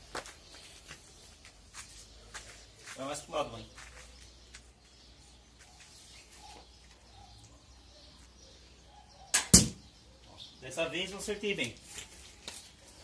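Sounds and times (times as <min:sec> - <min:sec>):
arrow striking board: 0:09.3 - 0:09.8
crossbow firing crack: 0:09.3 - 0:09.8.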